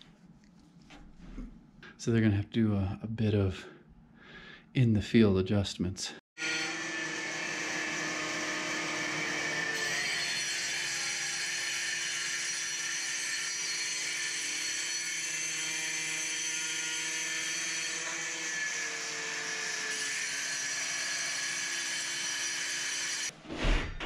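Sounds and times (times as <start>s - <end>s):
power grinder whining: 6.4s - 23.3s.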